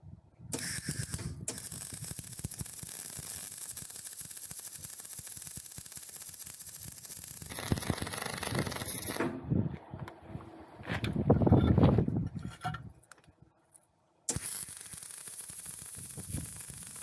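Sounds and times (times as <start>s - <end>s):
electric arc welding crackle: 0.6s - 9.3s, 14.3s - 17.0s.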